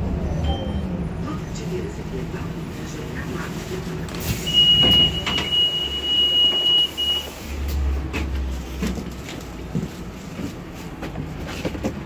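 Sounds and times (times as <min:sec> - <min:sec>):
low vehicle hum: 0:00.0 - 0:06.2
high door warning beep: 0:04.5 - 0:07.3.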